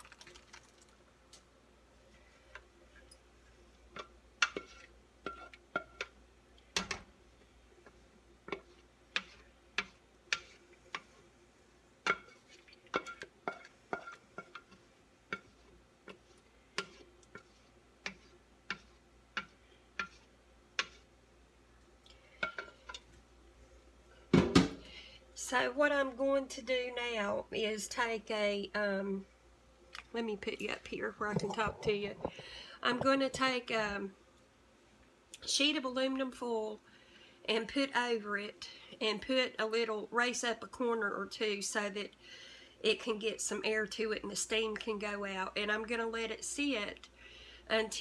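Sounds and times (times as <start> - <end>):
spatula scraping metal pot: 4.0 - 6.1, 8.5 - 11.1, 12.0 - 21.1.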